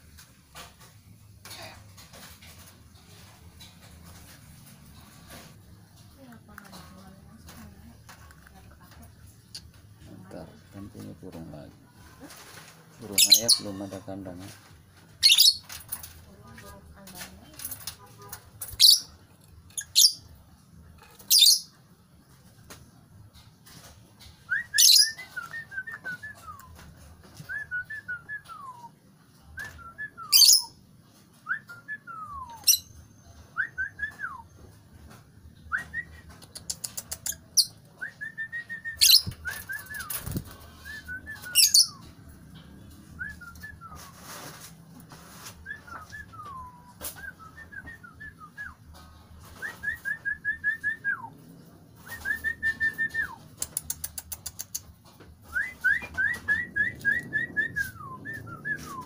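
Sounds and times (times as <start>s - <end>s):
lovebirds chirping: 12.3s - 14.4s
wings fluttering: 35.7s - 42.1s, 55.4s - 59.0s.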